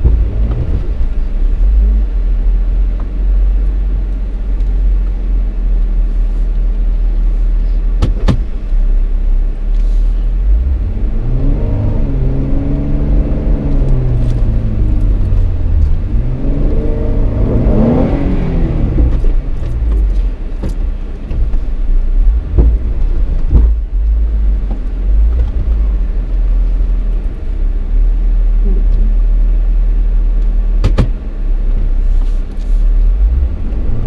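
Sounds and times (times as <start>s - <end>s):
vehicle engine revving: 9.8s - 27.2s.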